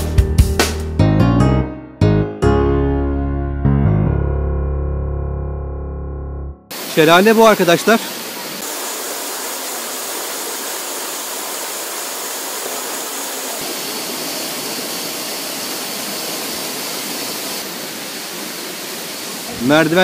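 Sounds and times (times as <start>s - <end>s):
waterfall rushing: 6.7s - 20.0s.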